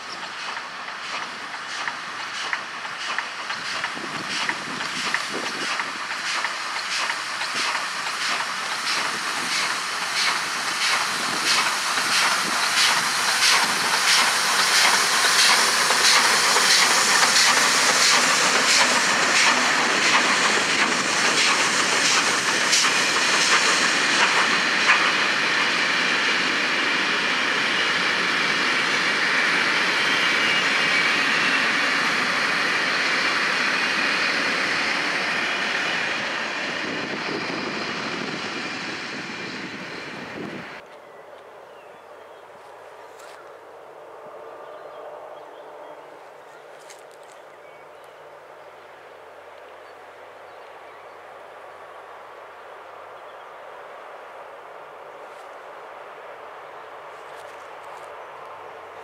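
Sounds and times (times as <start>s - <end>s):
steam locomotive chuffing: 0.0s - 40.8s
coaches rolling on rails: 0.0s - 41.1s.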